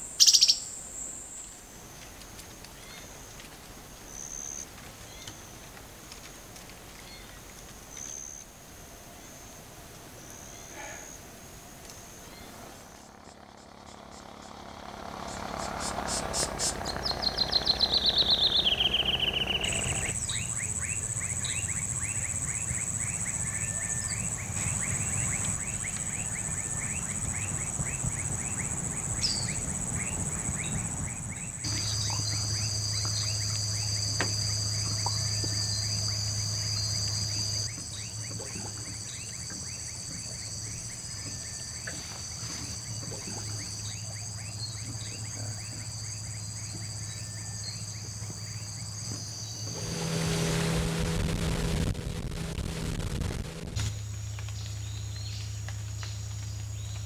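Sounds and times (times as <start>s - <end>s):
high insect drone: 0.0s - 57.0s.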